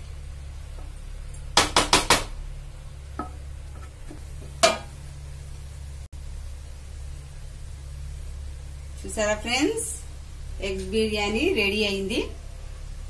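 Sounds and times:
steady low hum: 0.0 - 13.0
wooden spatula tapping metal pot: 3.2 - 4.9.

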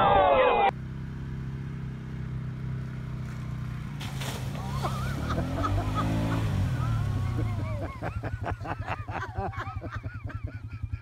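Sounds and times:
voices: 0.0 - 0.7
atv engine idling low: 0.7 - 11.0.

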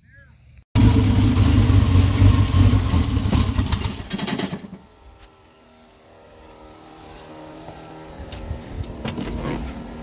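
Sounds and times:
car engine idling: 0.8 - 4.0.

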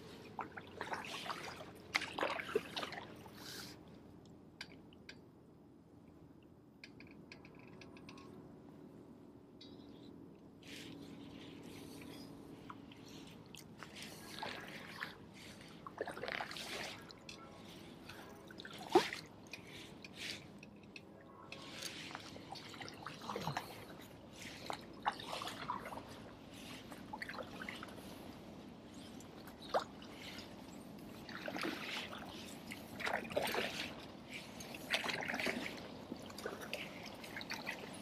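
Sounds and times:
paddle strokes splashing water: 0.0 - 3.8, 10.6 - 20.6, 21.4 - 38.0.

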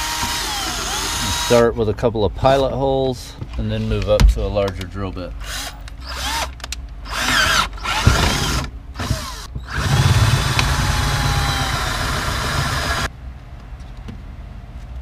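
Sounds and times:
cordless drill boring plastic: 0.0 - 1.5, 7.1 - 13.1.

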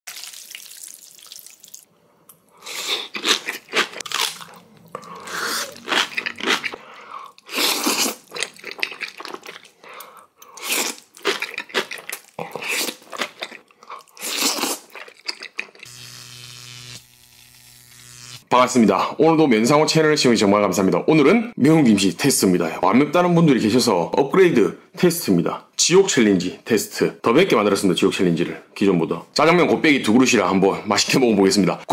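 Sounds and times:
person chewing crunchy food: 2.6 - 15.9.

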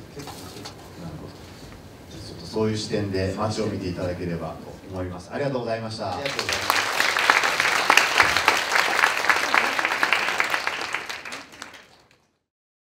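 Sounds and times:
audience applauding: 6.2 - 12.3.

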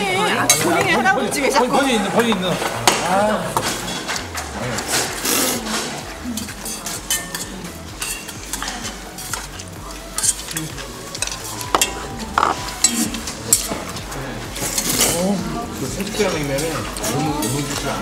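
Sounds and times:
utensils scraping metal bowl: 2.2 - 18.0
wet hissing stirring: 4.7 - 18.0
metallic rings: 6.4 - 9.4.

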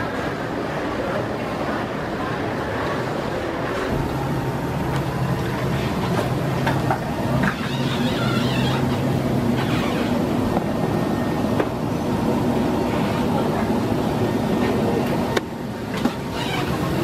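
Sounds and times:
cabin ventilation air rushing: 3.8 - 17.0.

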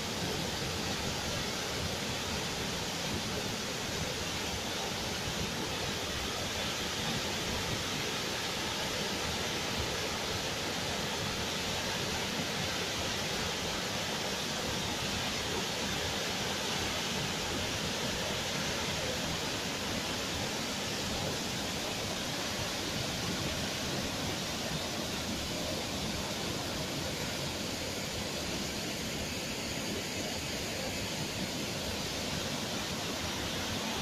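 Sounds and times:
waterfall rushing: 0.0 - 34.0.

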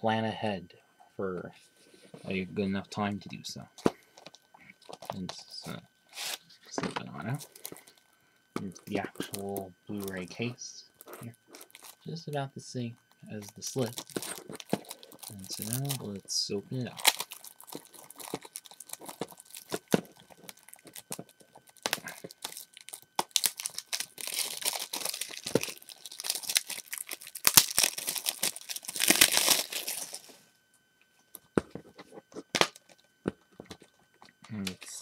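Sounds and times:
plastic wrap crinkling: 7.3 - 8.0, 8.6 - 10.4, 11.0 - 12.2, 13.1 - 16.2, 16.8 - 30.4.

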